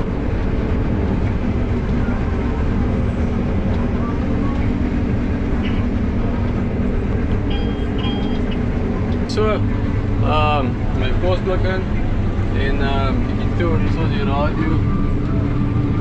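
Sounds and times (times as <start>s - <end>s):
combine harvester droning: 0.0s - 16.0s
short high beep: 7.5s - 8.6s.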